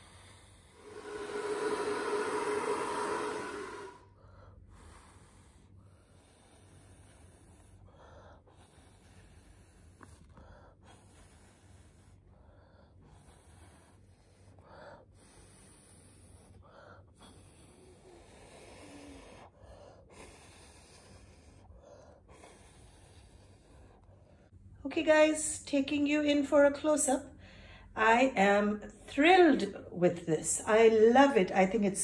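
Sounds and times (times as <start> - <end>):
faint breathing: 0.0 - 24.6, 27.3 - 28.0.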